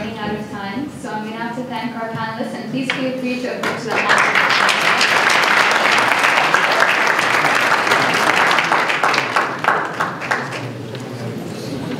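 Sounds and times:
audience applauding: 3.6s - 11.3s.

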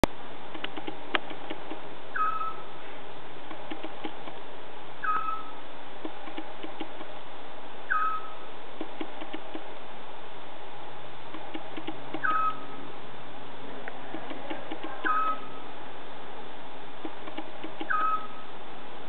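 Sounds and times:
steady hiss: 0.0s - 19.0s
faint clicks: 0.5s - 1.8s, 3.5s - 4.4s, 6.0s - 7.1s, 8.8s - 9.7s, 11.3s - 12.4s, 13.8s - 15.1s, 17.0s - 18.2s
owl whistled call: 2.1s - 2.7s, 5.0s - 5.6s, 7.9s - 8.5s, 12.2s - 12.8s, 15.0s - 15.6s, 17.8s - 18.5s.

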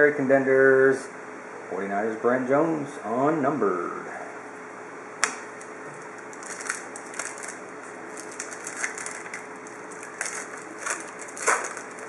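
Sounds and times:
foil wrapper snapping: 5.2s - 12.0s
foil wrapper crinkling: 6.1s - 12.0s.

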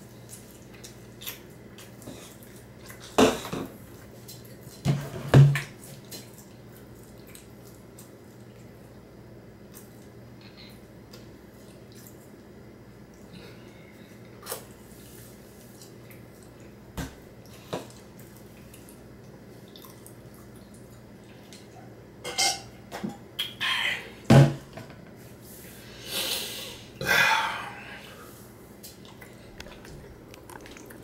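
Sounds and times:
person gulping: 29.1s - 31.0s.

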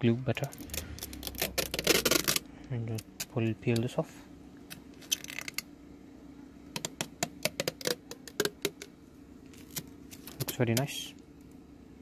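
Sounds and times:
plastic film peeling and crinkling: 0.4s - 3.5s, 5.0s - 5.6s, 6.8s - 10.8s.

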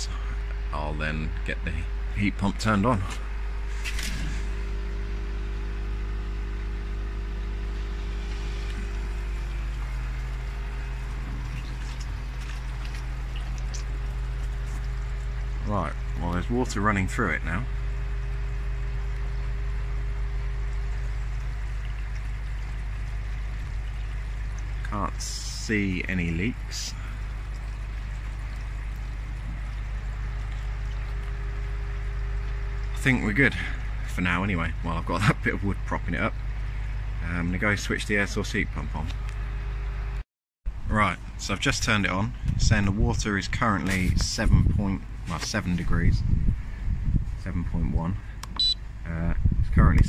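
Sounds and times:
pond pump humming: 0.0s - 50.0s
water rushing through pipes: 2.8s - 38.8s.

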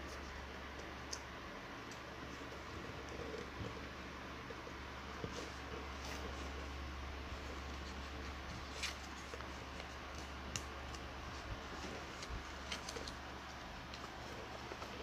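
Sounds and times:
steady low hum: 0.0s - 15.0s
paper crinkling and tapping: 7.7s - 15.0s.

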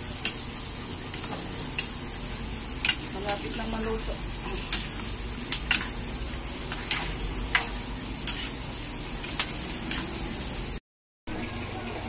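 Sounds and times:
vegetables sizzling: 0.0s - 11.8s
metal spatula scraping a wok: 6.7s - 10.2s.

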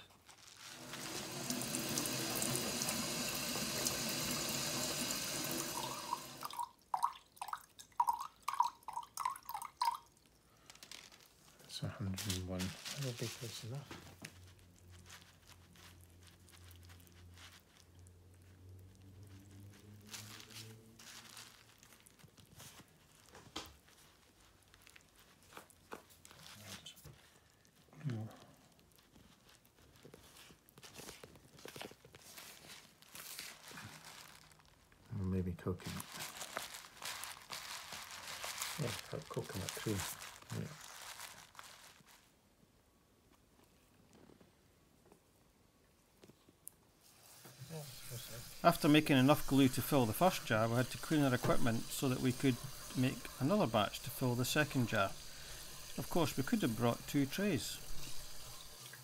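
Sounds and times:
tub shifting on bubble wrap: 0.0s - 4.4s, 10.7s - 27.3s, 28.0s - 42.3s
tap water stream into bottle: 0.8s - 10.1s, 48.4s - 59.0s.

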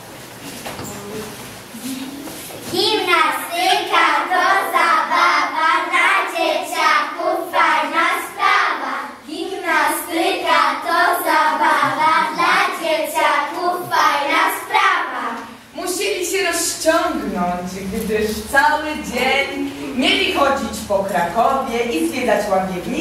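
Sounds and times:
children singing: 2.8s - 15.5s.

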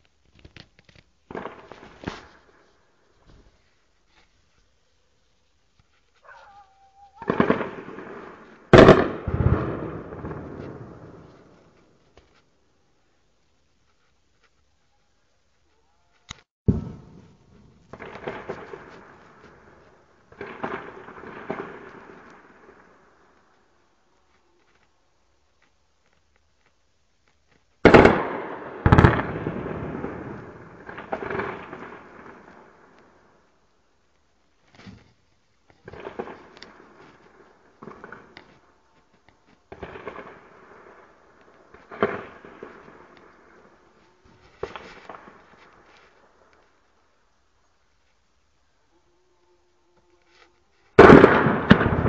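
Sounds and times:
gunfire: 7.2s - 11.6s, 16.7s - 22.9s, 27.8s - 32.9s, 51.0s - 52.0s
rolling echo: 7.2s - 12.1s, 16.7s - 23.5s.

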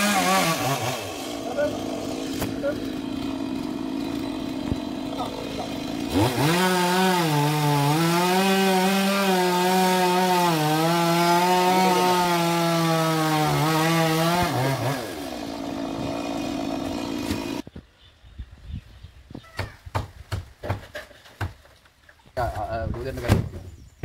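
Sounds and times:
chainsaw cutting wood: 0.0s - 17.6s.

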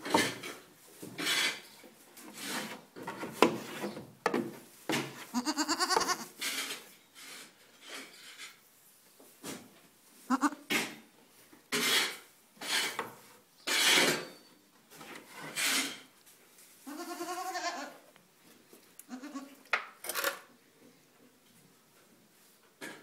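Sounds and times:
rubbing noises near microphone: 0.0s - 4.0s
goat kid bleating: 5.2s - 6.4s, 10.2s - 10.7s, 16.8s - 18.1s, 19.0s - 19.6s.

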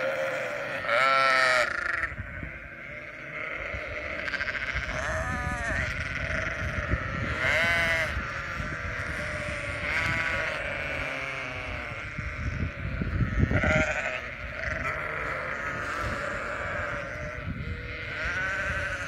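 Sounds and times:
sheep bleating: 0.0s - 19.0s.

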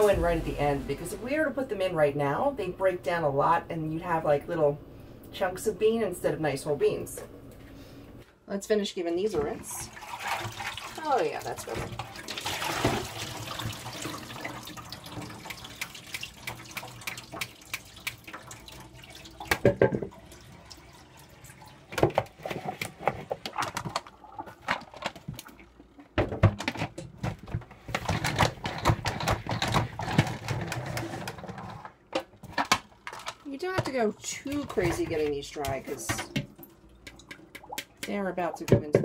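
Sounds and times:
water splashing: 9.8s - 23.5s.

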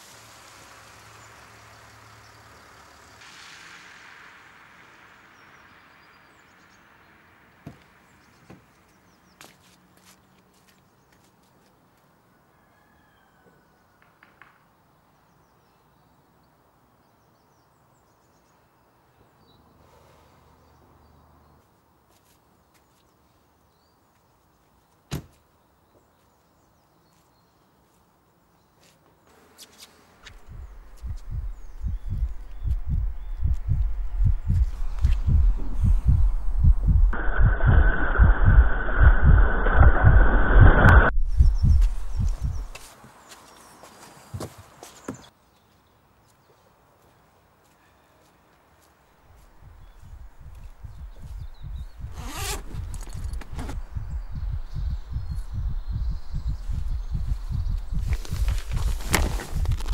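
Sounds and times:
tyre hiss on wet road: 0.0s - 8.3s, 19.8s - 20.7s
quiet outdoor background: 0.0s - 59.9s
car engine rumble: 30.2s - 42.8s, 49.6s - 59.9s.

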